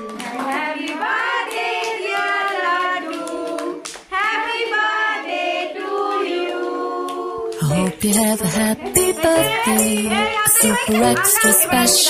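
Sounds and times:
hand clapping: 0:00.0 - 0:04.4
children and women singing: 0:00.0 - 0:12.0.

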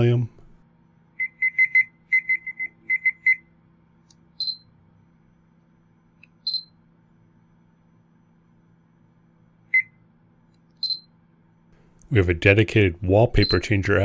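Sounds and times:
short electronic beeps: 0:01.2 - 0:03.5, 0:04.4 - 0:04.7, 0:06.4 - 0:06.8, 0:10.8 - 0:11.1, 0:13.4 - 0:13.7
higher-pitched beeps: 0:04.4 - 0:04.7, 0:06.4 - 0:06.8, 0:10.8 - 0:11.1.

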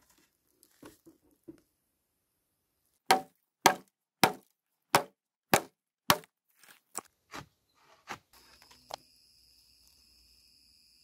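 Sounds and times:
wood splitting and snapping: 0:03.1 - 0:07.1
crickets trilling: 0:08.4 - 0:11.0.

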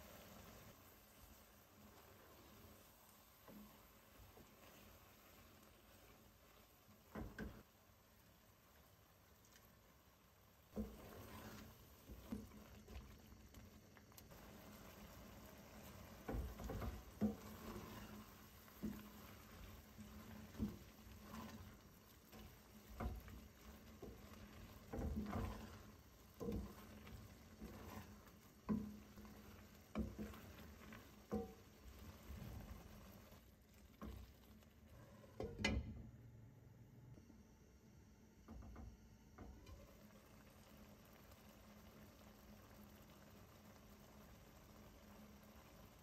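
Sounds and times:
wet stirring of thick sauce: 0:00.0 - 0:35.1
spoon tapping and scraping pan: 0:07.0 - 0:07.7, 0:10.7 - 0:32.8.

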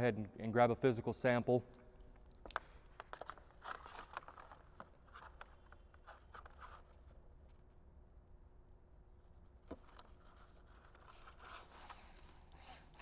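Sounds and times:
low room hum: 0:00.0 - 0:13.0
small handling clicks and rustles: 0:02.1 - 0:07.6, 0:09.6 - 0:13.0.

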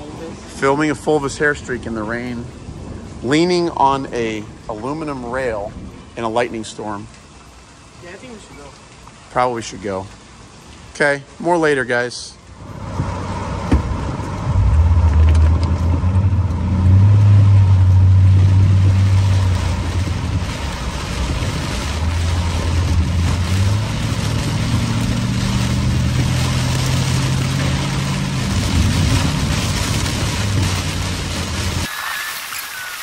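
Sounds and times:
heavy rain on car: 0:00.0 - 0:33.0
car engine accelerating: 0:12.6 - 0:31.9.

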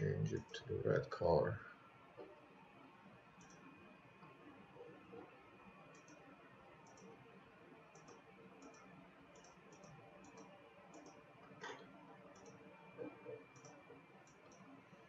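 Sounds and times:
computer mouse clicks: 0:03.4 - 0:04.4, 0:05.9 - 0:06.2, 0:06.8 - 0:07.2, 0:07.9 - 0:14.7.

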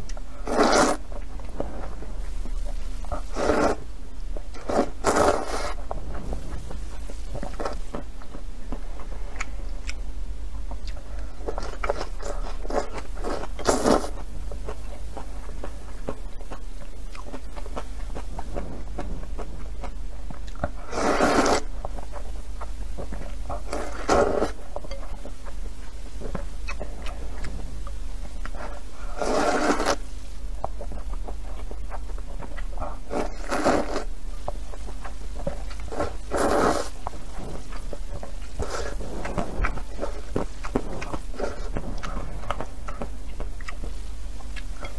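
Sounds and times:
person slurping noodles: 0:00.4 - 0:01.0, 0:03.2 - 0:03.8, 0:04.6 - 0:05.8, 0:12.2 - 0:14.1, 0:20.8 - 0:21.7, 0:23.7 - 0:24.6, 0:29.0 - 0:30.0, 0:33.1 - 0:34.1, 0:35.9 - 0:37.0, 0:38.6 - 0:40.3
wet chewing clicks: 0:30.6 - 0:44.9.

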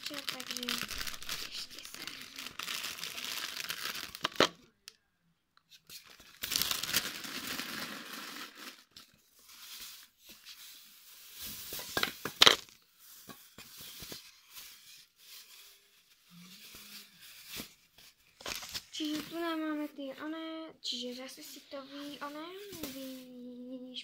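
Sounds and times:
plastic bag crinkling: 0:00.0 - 0:04.7, 0:06.0 - 0:10.0, 0:11.2 - 0:12.8.

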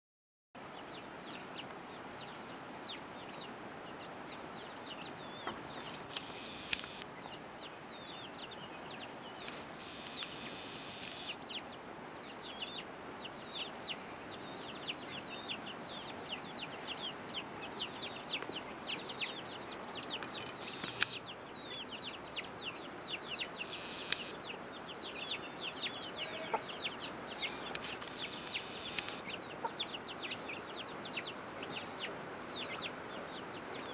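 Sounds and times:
chicks peeping: 0:00.7 - 0:33.9
sharp clicks: 0:06.0 - 0:07.1, 0:09.4 - 0:11.4, 0:20.2 - 0:21.2, 0:23.7 - 0:24.4, 0:27.7 - 0:29.3
hen clucking softly: 0:26.0 - 0:30.4.

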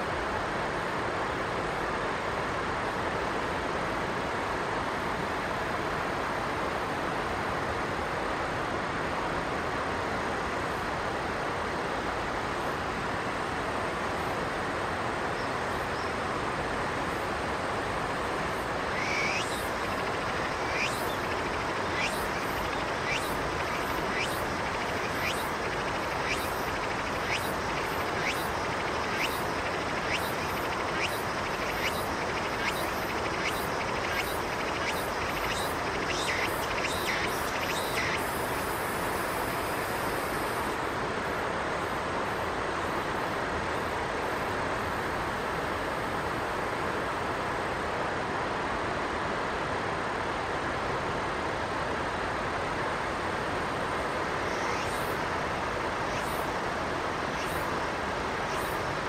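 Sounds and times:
river rushing: 0:10.7 - 0:43.7.

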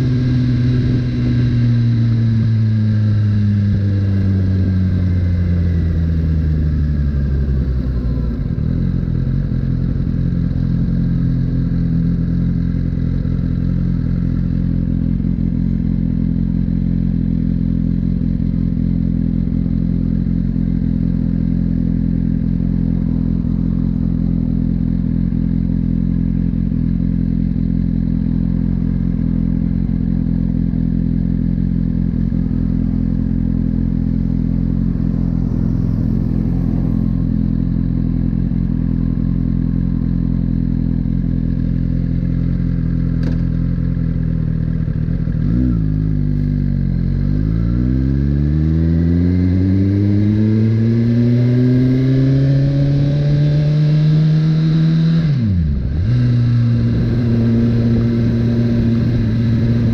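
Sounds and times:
motorcycle engine idling: 0:00.0 - 0:47.5.

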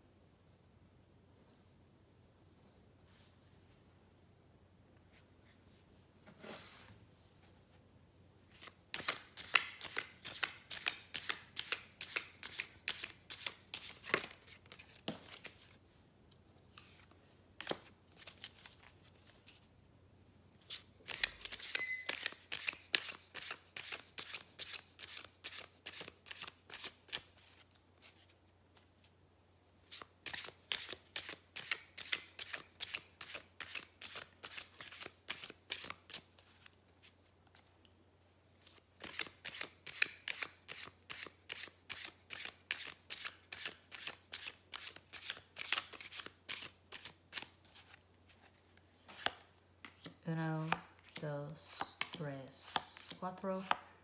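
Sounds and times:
cards shuffling: 0:08.5 - 0:15.8, 0:16.7 - 0:19.7, 0:20.6 - 0:28.9, 0:29.9 - 0:37.7, 0:38.6 - 0:53.9.

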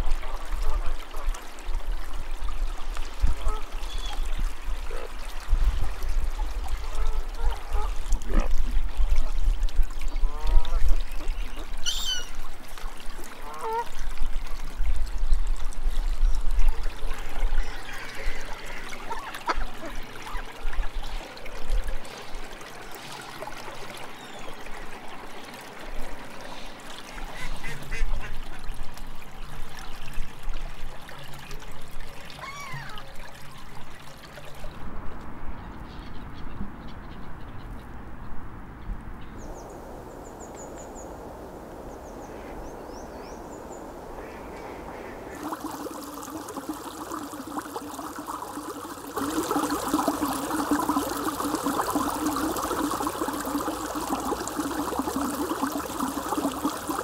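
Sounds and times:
gulls calling: 0:11.2 - 0:12.4.

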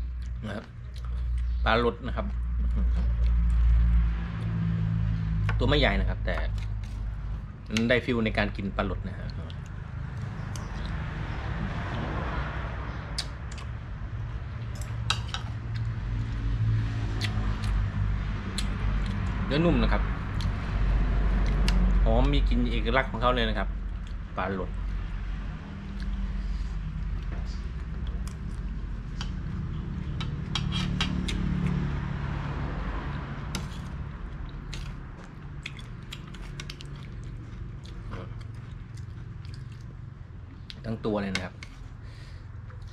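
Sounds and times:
chewing and mouth noises: 0:00.0 - 0:01.6, 0:02.3 - 0:04.6, 0:09.2 - 0:12.2, 0:13.1 - 0:13.8, 0:14.6 - 0:19.4, 0:20.3 - 0:22.0, 0:23.9 - 0:24.3, 0:25.7 - 0:31.9, 0:33.0 - 0:40.8
steady low hum: 0:00.0 - 0:42.9
cutlery clinking against a dish: 0:14.8 - 0:15.5
metal spoon scraping ceramic bowl: 0:30.2 - 0:31.2.

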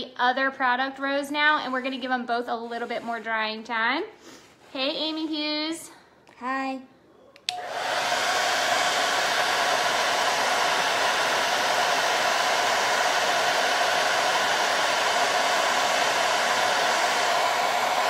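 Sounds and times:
hair dryer running: 0:07.5 - 0:18.0.

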